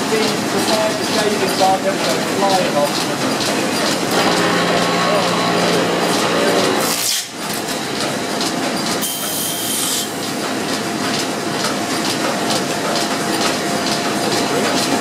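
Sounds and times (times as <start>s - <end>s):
machinery clatter: 0.0s - 15.0s
lathe cutting wood: 4.0s - 7.0s.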